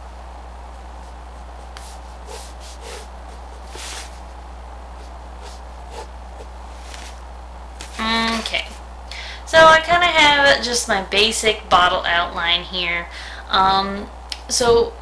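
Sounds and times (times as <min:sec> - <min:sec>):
steady low hum: 0:00.0 - 0:15.0
pencil scratching on paper: 0:01.0 - 0:04.2, 0:05.0 - 0:07.2.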